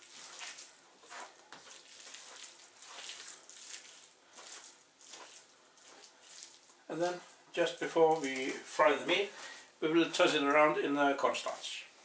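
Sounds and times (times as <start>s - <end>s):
wet squelching of meat mixing: 0.0s - 8.8s.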